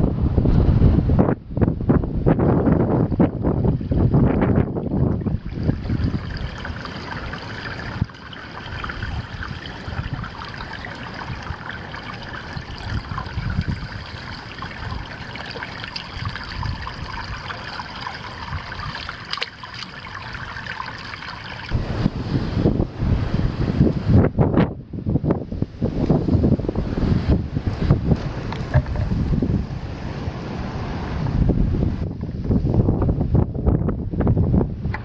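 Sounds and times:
wind gusting on microphone: 0.0s - 35.0s
water trickling: 3.1s - 21.9s.

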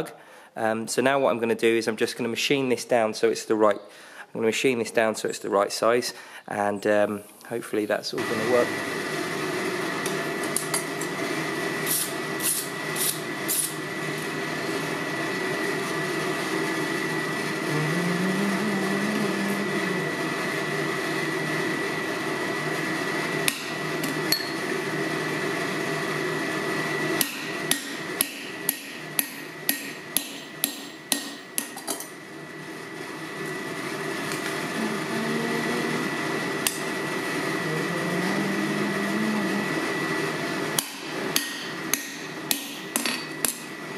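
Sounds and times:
steady hum: 5.2s - 43.9s
hammer striking punch on anvil: 27.2s - 31.8s, 40.8s - 43.7s.

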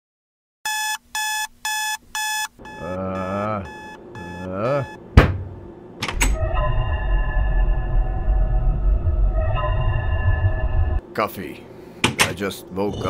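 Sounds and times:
alarm clock beeping: 0.7s - 5.0s
man groaning: 2.8s - 4.9s
sharp thump: 5.2s - 5.6s
low musical drone: 6.2s - 11.0s.

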